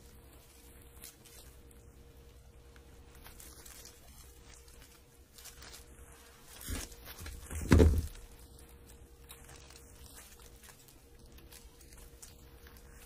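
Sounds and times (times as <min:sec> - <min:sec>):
heavy thump: 0:06.7 - 0:08.2
knock: 0:07.6 - 0:08.1.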